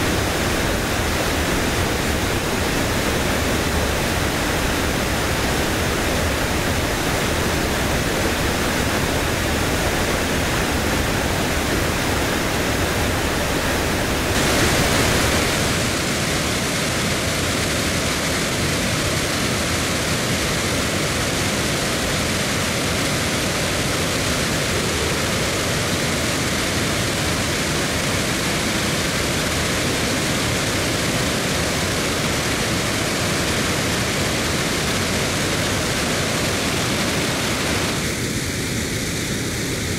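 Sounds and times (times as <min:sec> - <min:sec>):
rushing falling water: 0:00.0 - 0:39.9.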